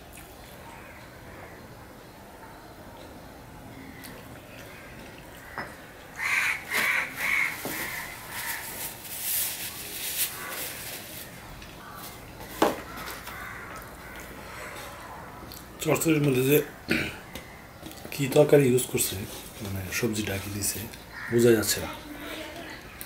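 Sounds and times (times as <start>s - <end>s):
crow cawing: 3.8s - 8.9s, 10.2s - 10.8s, 11.8s - 15.4s, 21.1s - 21.6s
rustles: 6.7s - 15.1s.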